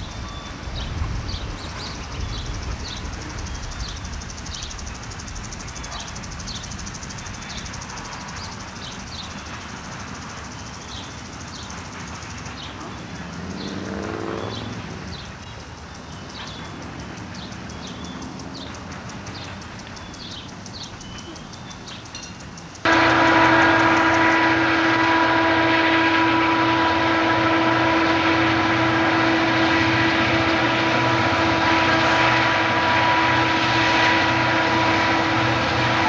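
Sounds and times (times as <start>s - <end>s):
low train rumble: 0.0s - 36.0s
train wheels clicking over rail joints: 0.7s - 24.7s
rising pitched drone: 22.9s - 24.9s.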